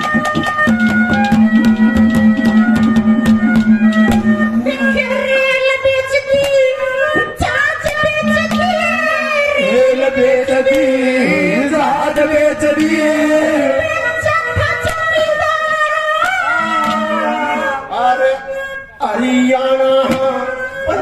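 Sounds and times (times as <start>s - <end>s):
sharp percussive strikes: 0.0s - 5.4s, 7.8s - 9.2s, 16.2s - 17.5s
man singing into a microphone: 8.3s - 13.9s, 17.8s - 21.0s.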